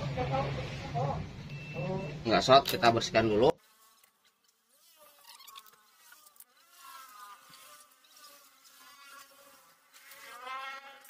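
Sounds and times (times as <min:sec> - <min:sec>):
fly buzzing: 0:03.6 - 0:11.0.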